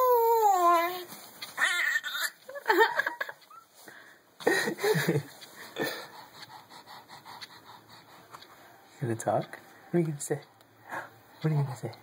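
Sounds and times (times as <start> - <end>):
baby laughing and squealing: 1.6 - 2.6.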